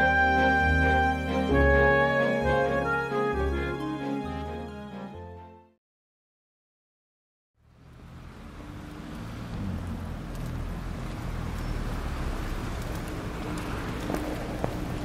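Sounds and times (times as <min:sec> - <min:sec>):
low engine hum: 0:07.6 - 0:15.0.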